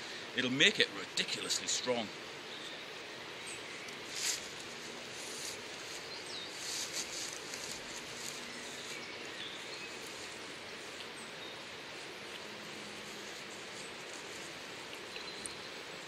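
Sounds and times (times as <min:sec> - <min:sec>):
faint birds chirping: 0:01.2 - 0:16.0
willow rods rustling and scraping: 0:03.9 - 0:11.1, 0:11.9 - 0:15.6.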